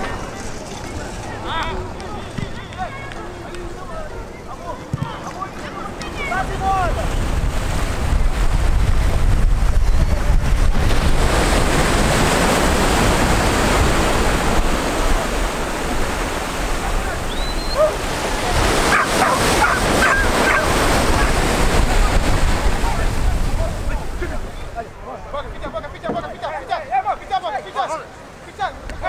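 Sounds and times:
surf breaking on a beach: 0.0 - 29.0
wind rumbling on microphone: 6.0 - 24.8.

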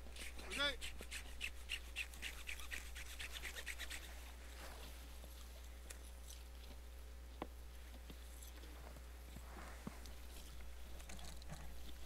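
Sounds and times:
rapid rhythmic scraping: 0.0 - 4.2.

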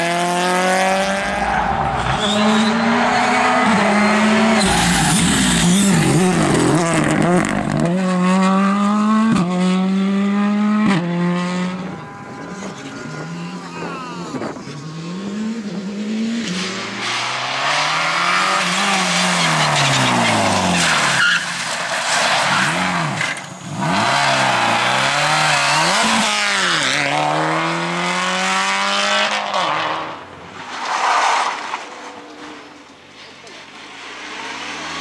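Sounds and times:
rally car engines revving: 0.0 - 35.0
car braking: 1.0 - 8.0, 10.8 - 27.2.

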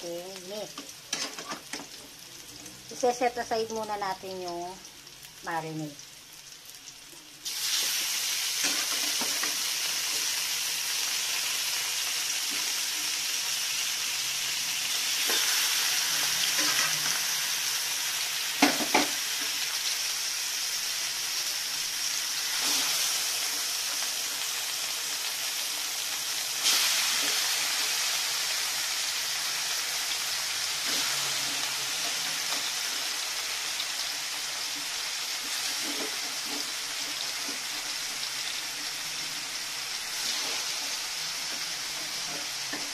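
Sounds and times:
meat sizzling in hot oil: 0.0 - 42.9.

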